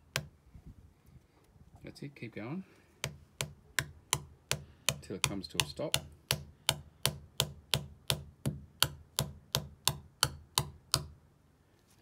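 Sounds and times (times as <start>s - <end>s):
hammer tapping plastic plug: 3.0s - 11.2s.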